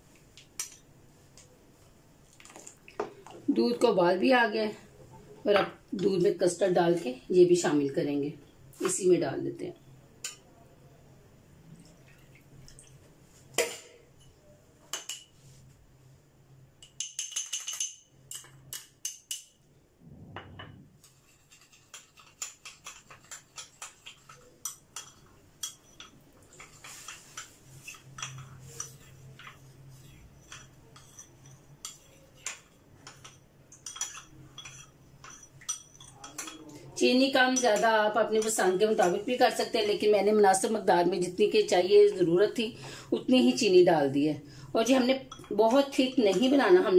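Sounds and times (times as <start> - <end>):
low steady hum: 19.6 - 21.1
metal spoon scraping glass bowl: 21.0 - 32.4.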